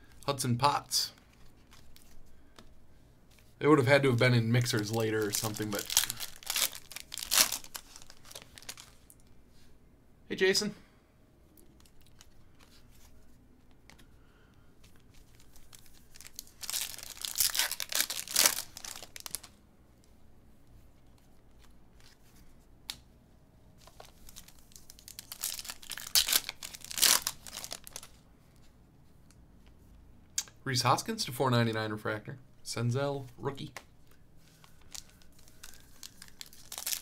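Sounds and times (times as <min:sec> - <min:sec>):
trading cards rustling: 0:01.2 - 0:02.7, 0:03.3 - 0:09.1, 0:14.8 - 0:19.5, 0:23.8 - 0:28.2, 0:33.6 - 0:37.0.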